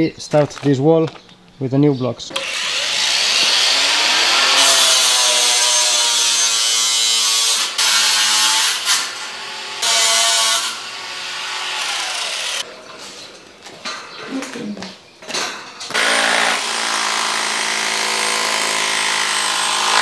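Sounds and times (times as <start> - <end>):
angle grinder cutting steel mesh: 2.3 - 12.6, 15.9 - 20.0.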